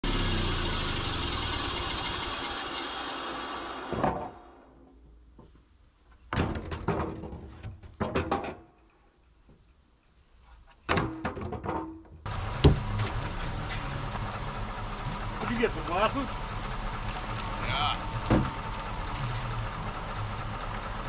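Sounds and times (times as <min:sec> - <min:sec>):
engine idling: 0:00.0 - 0:04.0, 0:12.3 - 0:21.0
wooden boards clattering on steel: 0:06.2 - 0:08.9, 0:10.8 - 0:13.1, 0:17.2 - 0:19.6.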